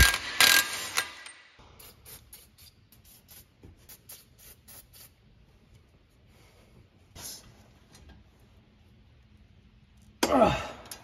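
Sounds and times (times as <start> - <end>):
impact wrench bursts: 0.0 - 1.4.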